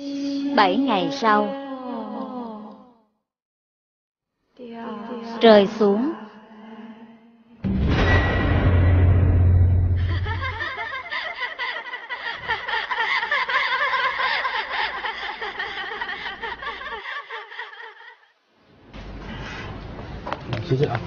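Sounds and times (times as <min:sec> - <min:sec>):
deep low boom: 0:07.6 - 0:10.8
several voices laughing: 0:10.0 - 0:18.3.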